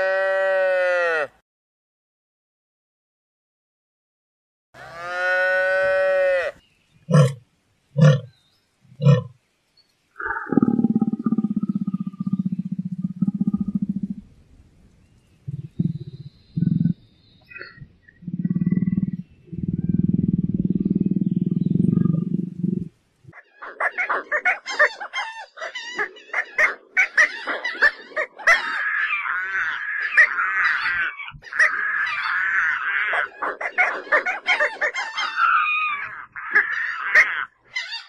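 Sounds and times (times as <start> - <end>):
big cat growling: 15.5 - 17.0
pelicans squawking: 23.3 - 38.0.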